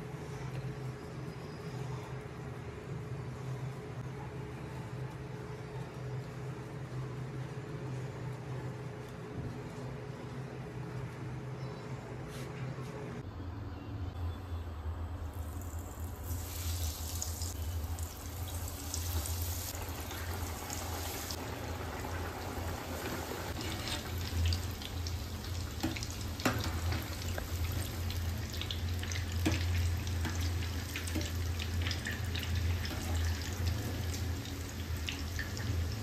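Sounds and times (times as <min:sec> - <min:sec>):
deep-frying sizzle: 0:15.3 - 0:36.0.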